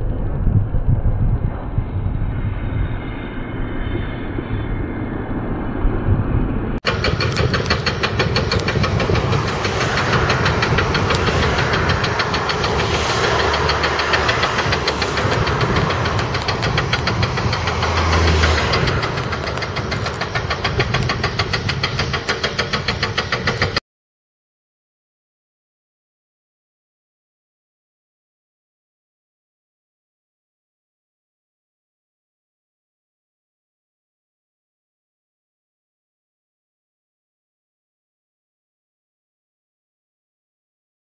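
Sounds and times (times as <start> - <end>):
excavator diesel engines clattering: 6.8 - 23.8
fast steady knocking: 6.8 - 23.8.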